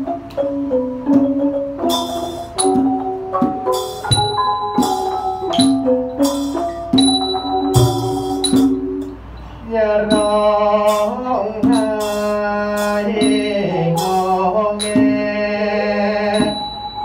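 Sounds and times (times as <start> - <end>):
bright metallic strikes: 1.1 - 9.5
man singing slow chant: 9.6 - 16.7.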